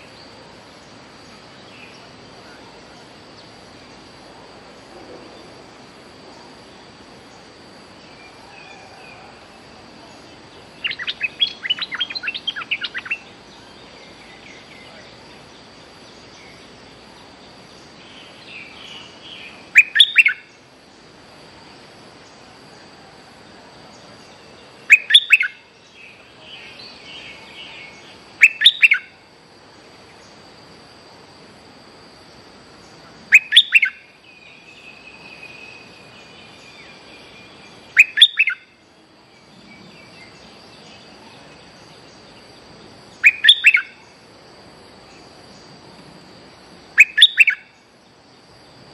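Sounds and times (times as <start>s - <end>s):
faint high whine: 0.0s - 48.9s
bulbul calling: 10.2s - 15.5s, 17.8s - 20.6s, 24.8s - 29.2s, 32.9s - 38.8s, 43.2s - 44.2s, 46.9s - 47.9s.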